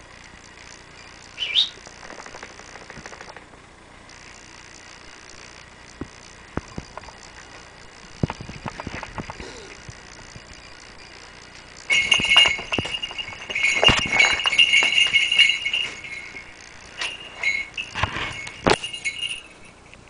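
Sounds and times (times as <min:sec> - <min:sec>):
small bells jingling: 0:11.5 - 0:20.0.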